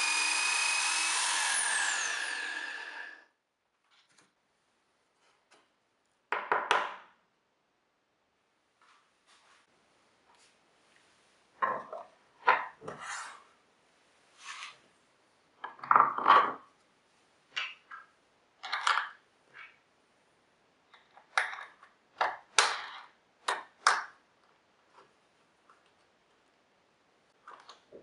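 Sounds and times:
wooden parts knocking and scraping: 11.6s - 13.0s, 15.6s - 16.7s.

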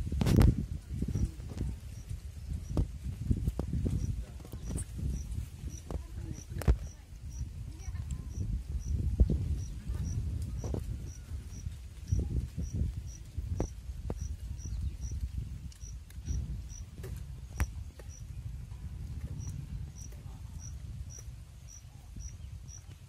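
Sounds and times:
insect chirping: 3.8s - 16.9s, 19.4s - 22.9s.

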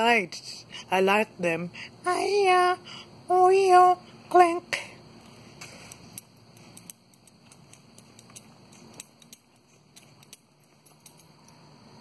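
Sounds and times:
faint footsteps: 5.2s - 11.7s.

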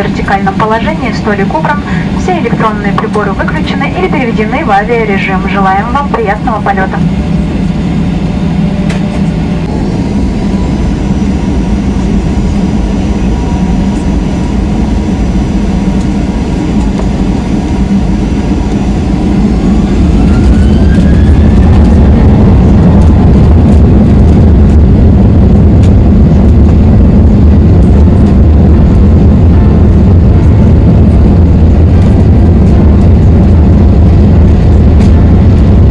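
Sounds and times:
jet engines from inside cabin: 0.0s - 35.9s
rising engine whine: 0.0s - 35.9s.

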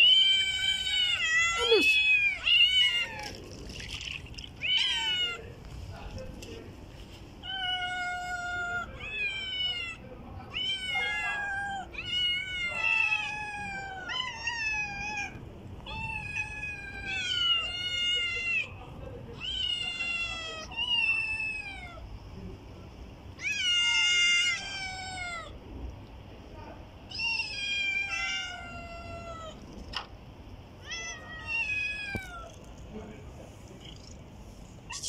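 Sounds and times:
cats meowing: 0.0s - 5.7s, 7.4s - 22.1s, 23.3s - 25.6s, 27.0s - 30.1s, 30.8s - 32.7s.

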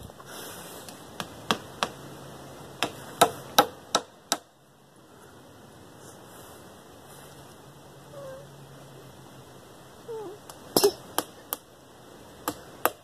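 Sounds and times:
hammer striking nails: 2.8s - 4.5s.

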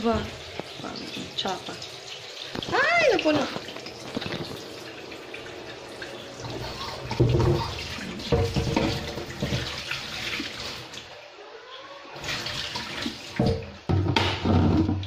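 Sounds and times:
water pouring into container: 0.0s - 11.2s, 12.1s - 13.8s
kettle knocked on tiled counter: 7.1s - 7.7s, 8.3s - 9.6s, 13.4s - 15.0s.

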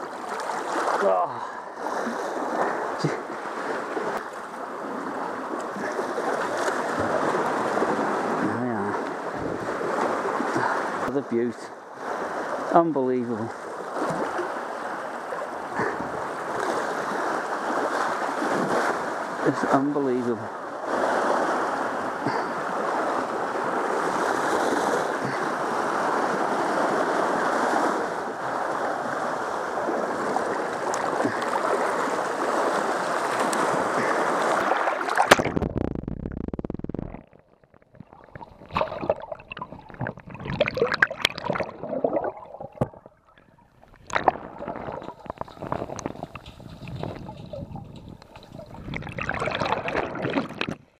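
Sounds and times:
churning water: 0.0s - 51.0s
wind on microphone: 6.9s - 10.7s, 33.4s - 50.8s
sea water washing on rocks: 20.9s - 36.4s, 43.8s - 50.9s
underwater gurgling and bubbles: 22.1s - 51.0s.

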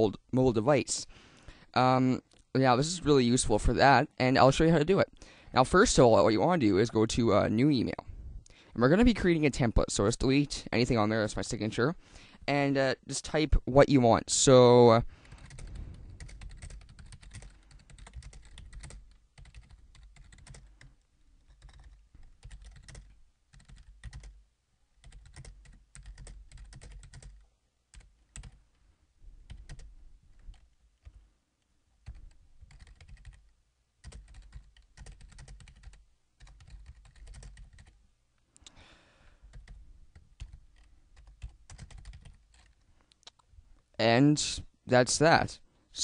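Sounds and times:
typing on computer keyboard: 15.3s - 24.4s, 25.0s - 28.6s, 29.5s - 29.9s, 32.0s - 38.0s, 39.5s - 42.8s.

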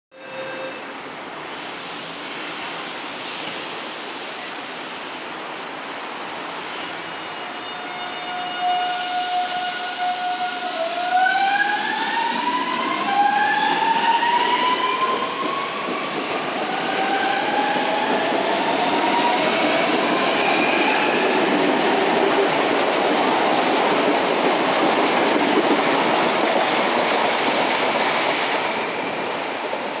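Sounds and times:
train wheels clattering on rail: 12.4s - 30.0s.

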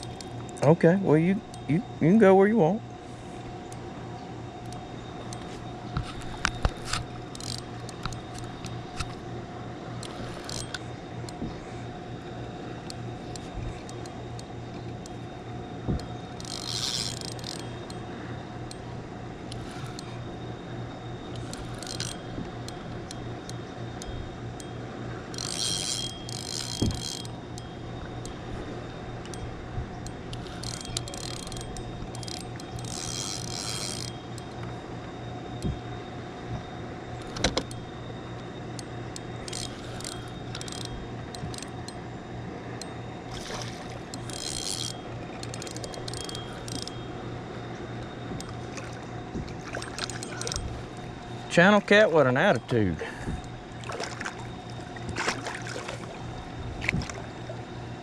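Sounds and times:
fishing reel cranking: 0.0s - 2.6s, 4.6s - 9.3s, 10.0s - 11.4s, 12.8s - 20.4s, 21.1s - 34.8s, 38.8s - 42.1s, 42.8s - 48.8s, 49.6s - 51.8s
steady low hum: 0.0s - 58.0s.

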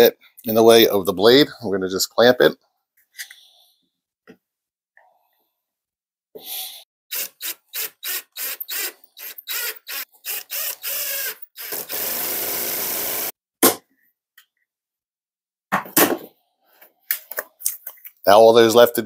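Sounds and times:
cordless drill driving screws: 7.1s - 13.3s.

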